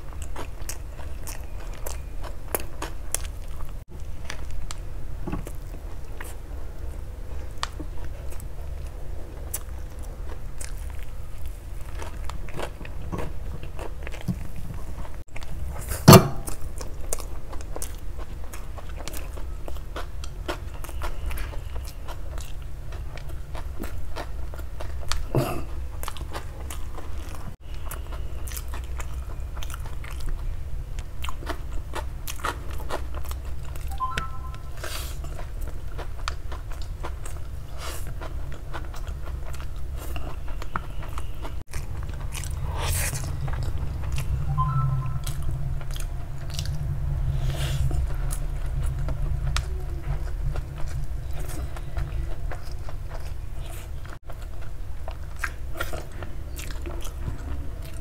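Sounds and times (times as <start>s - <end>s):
chewing with wet mouth smacks: 0.0s - 4.8s, 5.4s - 58.0s.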